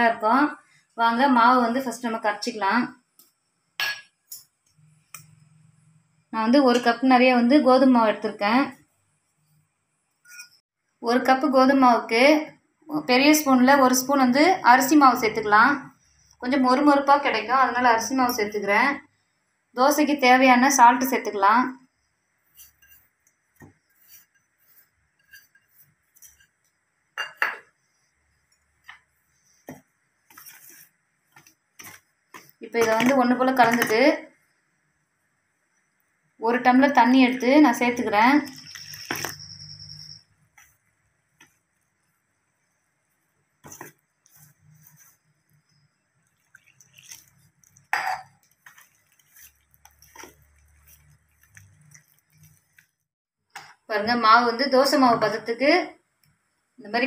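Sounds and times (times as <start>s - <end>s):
spoon clinking on steel bowl: 10.2s - 10.6s, 27.2s - 27.7s, 47.8s - 48.9s
spoon scraping a steel bowl: 10.2s - 10.6s, 22.4s - 29.7s, 30.3s - 30.9s, 38.5s - 40.8s, 43.6s - 52.9s.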